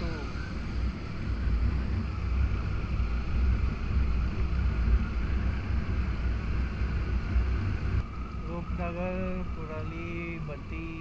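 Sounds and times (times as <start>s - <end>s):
road noise: 0.0s - 11.0s
wind rushing over microphone: 0.0s - 11.0s.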